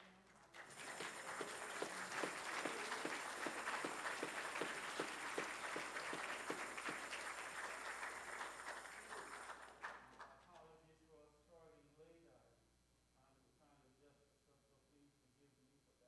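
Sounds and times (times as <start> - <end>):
congregation applauding: 0.0 - 10.7.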